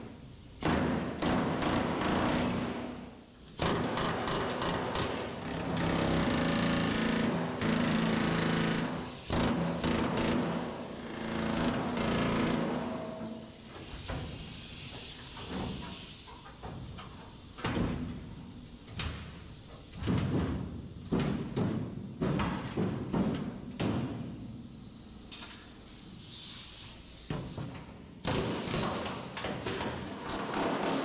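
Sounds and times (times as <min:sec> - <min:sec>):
brief hisses: 0:13.6 - 0:16.4, 0:25.9 - 0:27.3.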